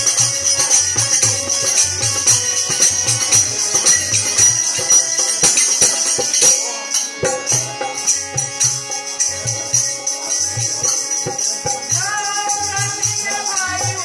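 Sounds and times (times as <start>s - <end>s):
harmonium chords: 0.0s - 14.0s
tambourine jingling: 0.0s - 14.0s
man singing: 10.9s - 14.0s.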